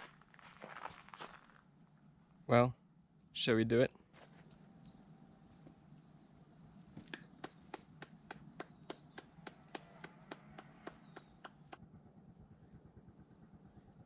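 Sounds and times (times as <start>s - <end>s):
high-pitched insect call: 0.0s - 14.0s
person clapping hands: 7.0s - 11.8s.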